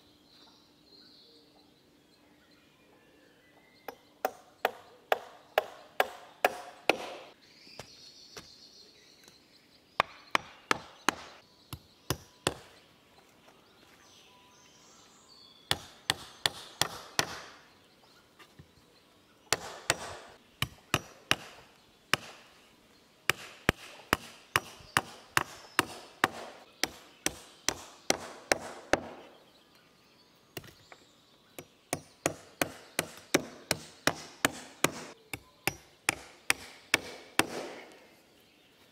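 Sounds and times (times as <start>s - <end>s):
hatchet striking wood: 3.9s - 7.3s, 10.0s - 12.7s, 15.7s - 17.5s, 19.5s - 22.4s, 23.3s - 29.2s, 31.6s - 37.9s.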